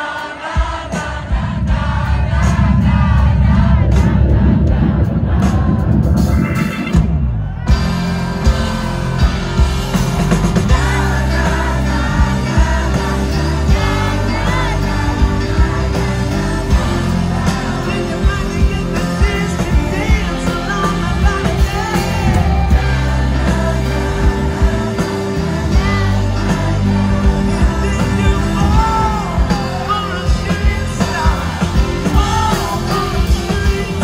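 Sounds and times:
drums: 0:00.0 - 0:34.0
keyboards: 0:00.0 - 0:34.0
electric guitar: 0:02.5 - 0:34.0
male singer: 0:10.7 - 0:34.0.

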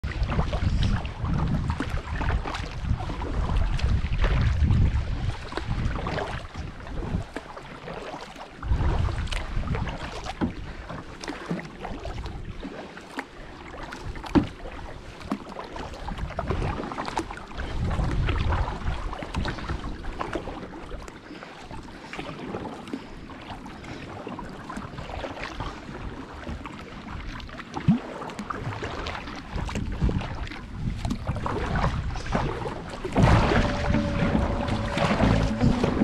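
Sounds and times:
wind rumble on microphone: 0:00.0 - 0:07.5, 0:08.5 - 0:10.9, 0:15.9 - 0:20.5, 0:28.5 - 0:36.0
paddle splashing water: 0:00.0 - 0:36.0
sharp knock: 0:33.2 - 0:36.0.

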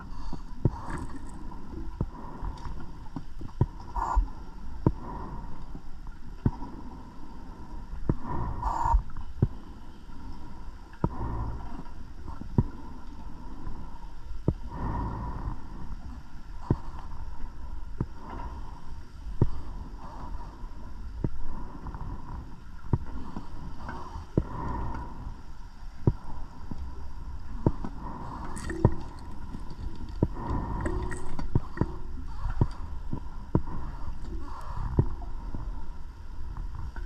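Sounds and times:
exhaled bubbles underwater: 0:28.3 - 0:32.9.

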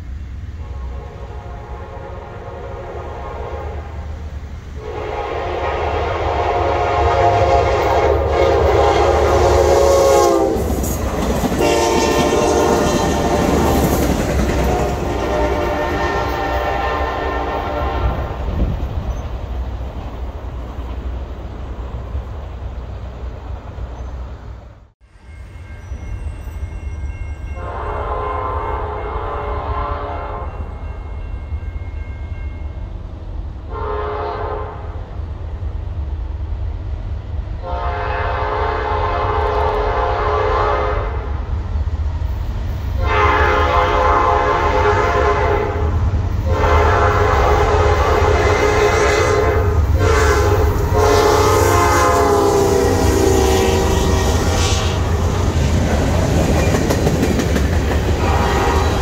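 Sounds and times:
deep rumble of train: 0:00.0 - 0:59.0
locomotive air horn blasts: 0:00.6 - 0:04.1, 0:04.8 - 0:10.9, 0:11.6 - 0:18.5, 0:27.5 - 0:30.8, 0:33.7 - 0:35.0, 0:37.6 - 0:41.3, 0:43.0 - 0:55.4, 0:58.2 - 0:59.0.

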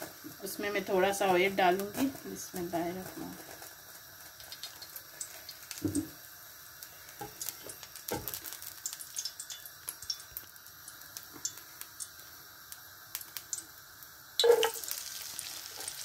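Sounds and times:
oil ticking and crackling in pan: 0:00.0 - 0:16.0.

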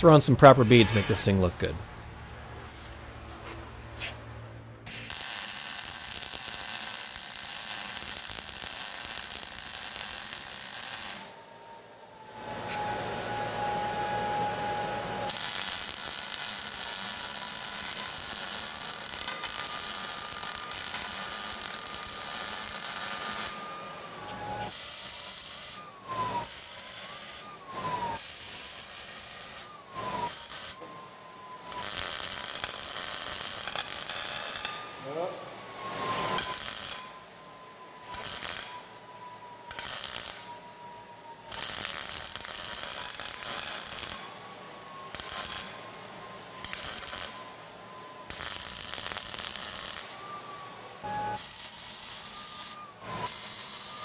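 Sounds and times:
thin steady whine: 0:00.0 - 0:54.0
welding arc crackling and hissing: 0:04.9 - 0:11.4, 0:15.2 - 0:23.7, 0:24.6 - 0:27.5, 0:28.1 - 0:30.8, 0:31.7 - 0:34.8, 0:36.0 - 0:37.2, 0:38.0 - 0:38.9, 0:39.7 - 0:40.6, 0:41.5 - 0:44.3, 0:45.0 - 0:45.8, 0:46.6 - 0:47.4, 0:48.3 - 0:50.2, 0:51.3 - 0:54.0.

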